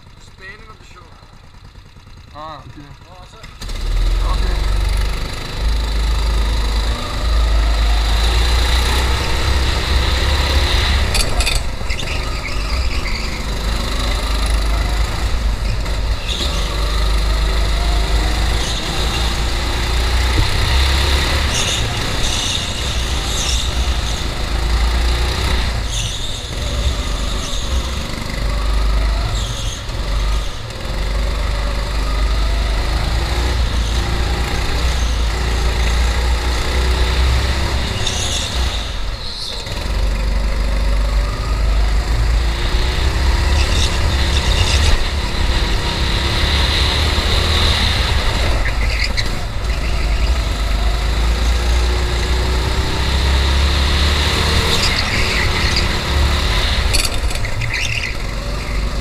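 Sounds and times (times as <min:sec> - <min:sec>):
go-kart engine: 0:00.0 - 0:59.0
tyres squealing: 0:11.1 - 0:13.8, 0:48.2 - 0:53.2, 0:54.3 - 0:59.0.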